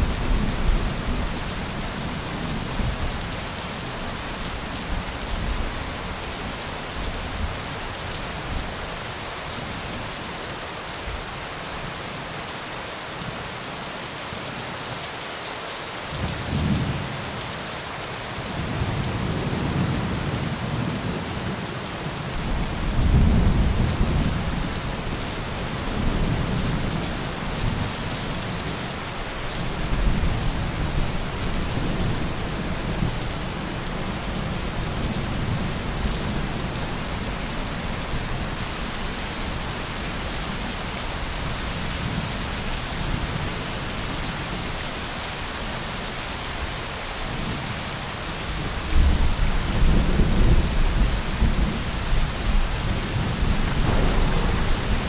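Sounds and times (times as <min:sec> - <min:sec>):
steady rain hissing: 0:00.0 - 0:55.0
low thunder rumbling: 0:22.4 - 0:27.8, 0:48.9 - 0:55.0.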